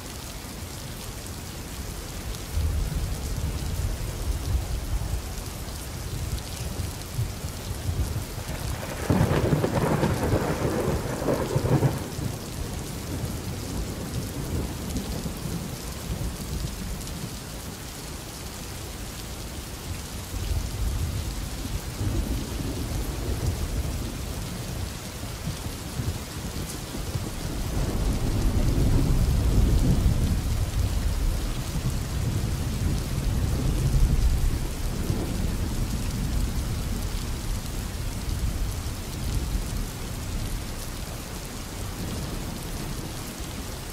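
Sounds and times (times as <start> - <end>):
steady rain: 0.0 - 43.9
thunder rumbling: 7.2 - 16.4, 22.0 - 37.4.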